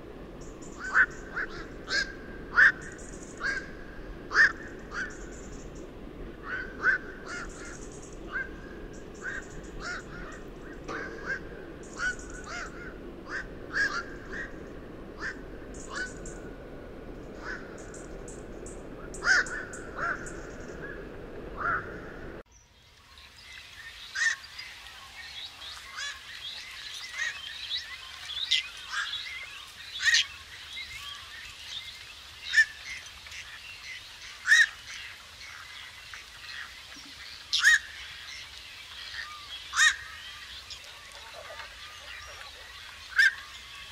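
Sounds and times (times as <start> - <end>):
heron harsh calls: 6.4 - 16.3, 19.1 - 21.0.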